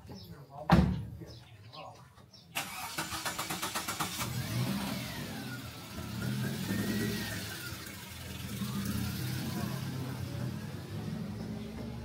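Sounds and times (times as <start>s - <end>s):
engine humming: 2.6s - 12.0s.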